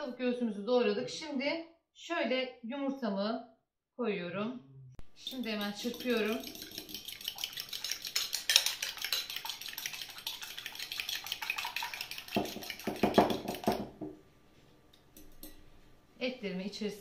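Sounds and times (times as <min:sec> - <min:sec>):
metal spoon clinking glass bowl: 0:05.2 - 0:13.8.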